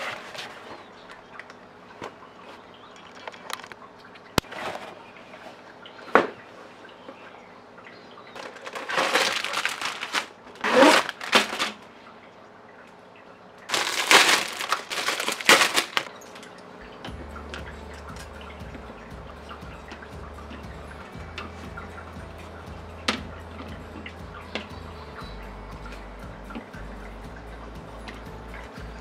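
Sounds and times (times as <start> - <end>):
plastic bag crinkling: 8.4 - 11.9, 13.7 - 16.2.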